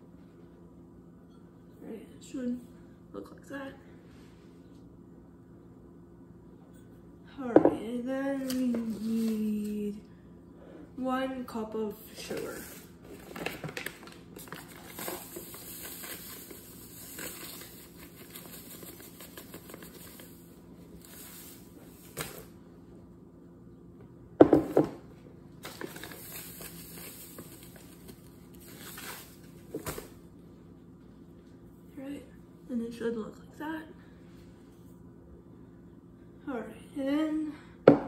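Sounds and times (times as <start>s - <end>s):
paper bag crinkling: 13.1s - 22.5s, 25.6s - 29.5s.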